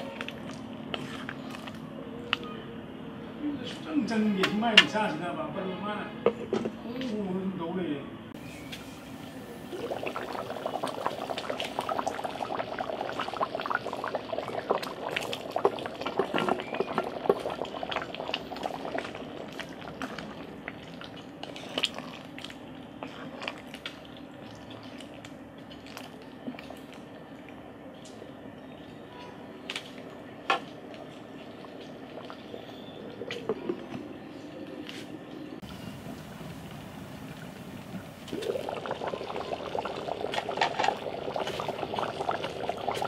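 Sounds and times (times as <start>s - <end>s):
wooden spoon stirring: 0.0s - 1.8s, 14.7s - 24.0s
stew bubbling in a pot: 0.0s - 1.9s, 8.4s - 27.7s, 30.4s - 34.0s, 35.6s - 43.0s.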